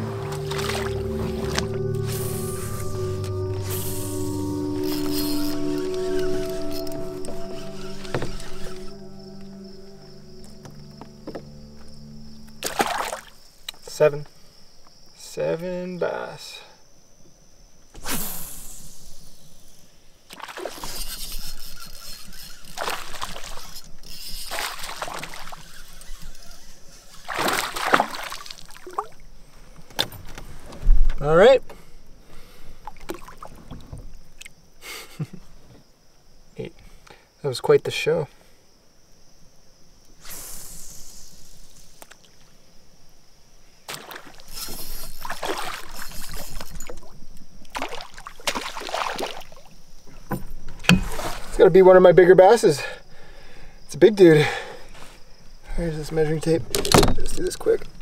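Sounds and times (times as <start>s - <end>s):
fish splashing in water: 0.1s - 1.8s, 12.6s - 13.4s, 20.3s - 23.8s, 24.4s - 26.2s, 27.1s - 29.2s, 43.9s - 47.1s, 47.7s - 49.7s.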